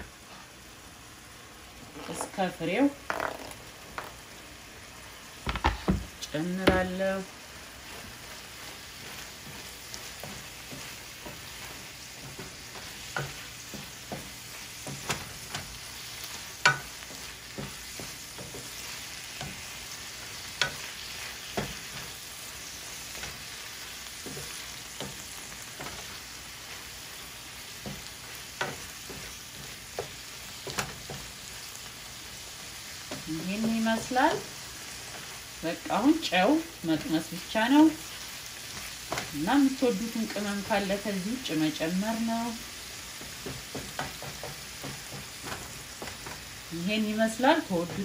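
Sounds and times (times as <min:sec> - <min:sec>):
food sizzling in a pan: 0:00.0 - 0:48.0
wooden spatula scraping a pan: 0:01.8 - 0:04.2, 0:05.5 - 0:48.0
spatula knocking against pan: 0:16.6 - 0:18.8, 0:43.2 - 0:46.4.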